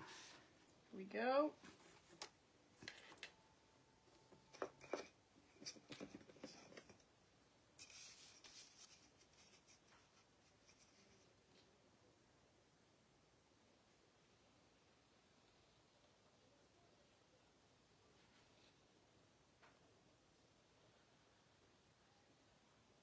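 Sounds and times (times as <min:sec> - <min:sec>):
soft rustle: 0:00.0 - 0:03.4, 0:07.8 - 0:11.8, 0:18.0 - 0:19.0
faint clicks and taps: 0:01.6 - 0:03.4, 0:04.1 - 0:07.1.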